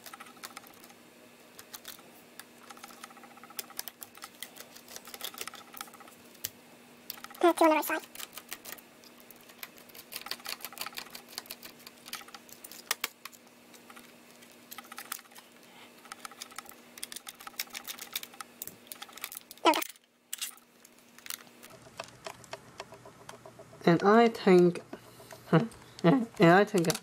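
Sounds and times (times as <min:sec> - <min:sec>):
faint steady hum: 0:00.0 - 0:27.0
screwdriver clicks and rattles: 0:01.6 - 0:06.5, 0:08.0 - 0:15.4, 0:16.0 - 0:23.5, 0:25.7 - 0:27.0.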